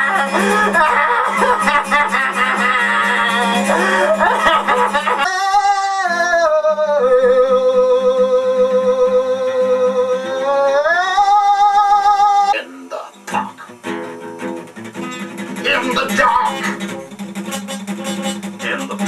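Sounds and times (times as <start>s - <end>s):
strummed acoustic guitar: 0.0s - 19.0s
man singing high notes: 5.2s - 13.0s, 15.6s - 16.9s, 18.5s - 19.0s.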